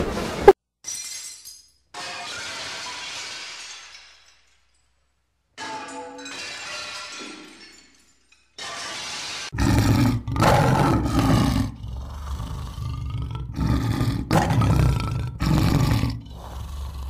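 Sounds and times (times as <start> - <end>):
loud roaring: 9.5 - 17.0.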